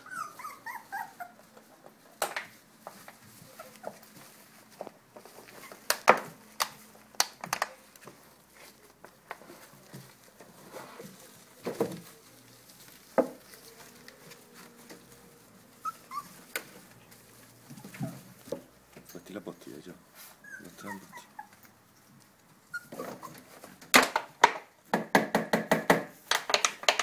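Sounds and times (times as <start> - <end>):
puppy squeak: 0.0 - 1.4, 15.8 - 16.4, 20.4 - 21.6, 22.6 - 23.5
plastic bottle and pads crackling: 2.0 - 17.6.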